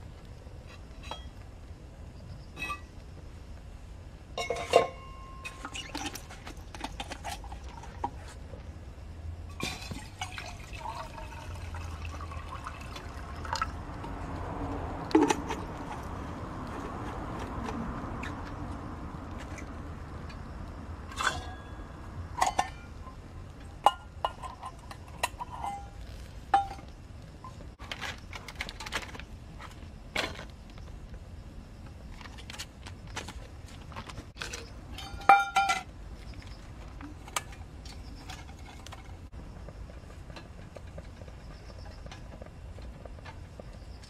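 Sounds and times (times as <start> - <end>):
metal cookware clinking: 4.4 - 6.2, 21.1 - 23.0, 23.8 - 26.0, 34.5 - 35.9.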